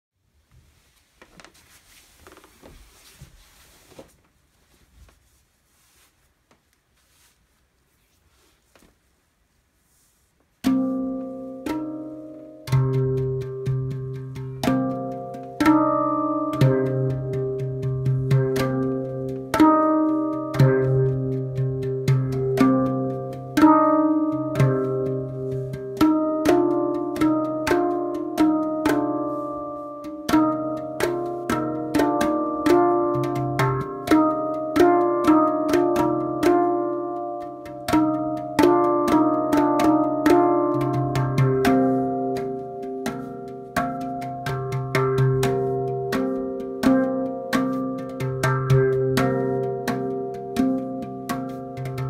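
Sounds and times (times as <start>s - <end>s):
handpan notes ringing: 10.6s - 52.0s.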